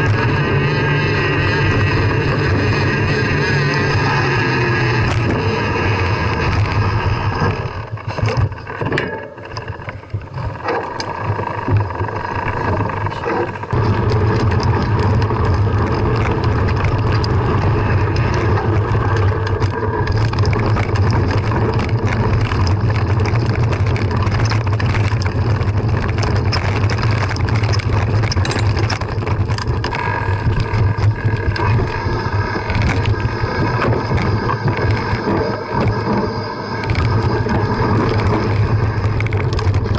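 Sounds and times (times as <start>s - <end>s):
bike clicks and rattles: 0.0s - 39.9s
tyres on gravel trail: 0.0s - 39.9s
steady low rumble: 9.6s - 39.9s.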